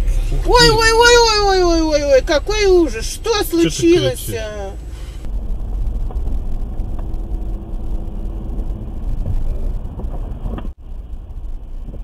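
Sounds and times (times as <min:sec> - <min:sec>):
car interior road rumble: 0:00.0 - 0:12.0.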